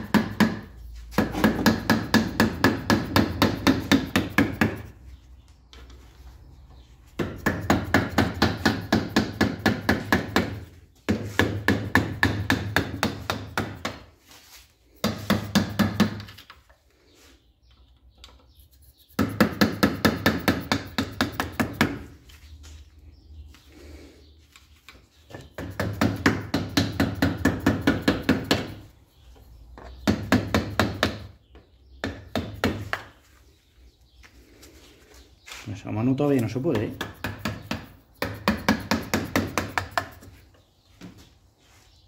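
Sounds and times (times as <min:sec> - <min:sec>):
rapid rhythmic tool knocking: 0:00.0 - 0:04.9, 0:07.2 - 0:14.0, 0:19.0 - 0:22.0, 0:25.5 - 0:28.8, 0:36.6 - 0:40.3.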